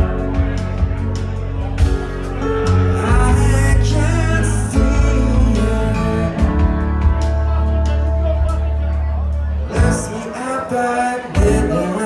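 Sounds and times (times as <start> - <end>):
bass notes: 0.0 - 12.0
person singing: 2.8 - 8.6, 9.6 - 12.0.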